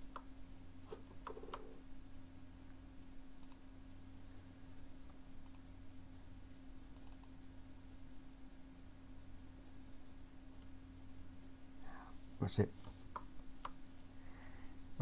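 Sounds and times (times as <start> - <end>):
steady low hum: 0.0 - 15.0
computer mouse and keyboard clicks: 0.9 - 1.8, 3.4 - 3.6, 5.4 - 5.7, 6.9 - 7.4.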